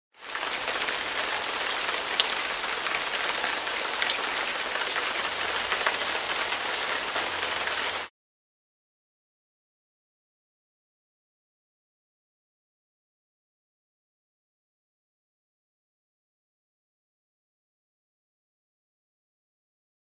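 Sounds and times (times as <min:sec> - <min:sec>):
steady rain falling: 0:00.2 - 0:08.1.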